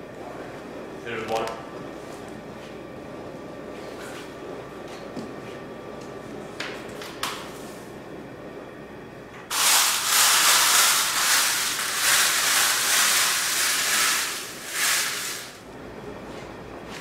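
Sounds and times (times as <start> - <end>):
grease fire hissing in a pan: 9.5 - 15.6.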